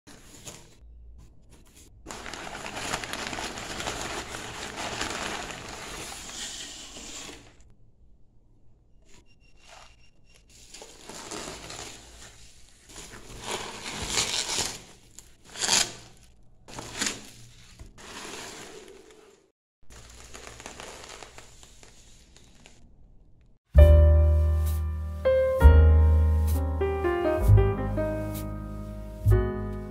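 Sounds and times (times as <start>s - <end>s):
packing paper rustling: 1.6s - 7.6s, 10.4s - 19.3s, 19.9s - 22.9s
bubble wrap crinkling: 2.1s - 7.6s, 10.6s - 19.3s, 19.9s - 23.0s.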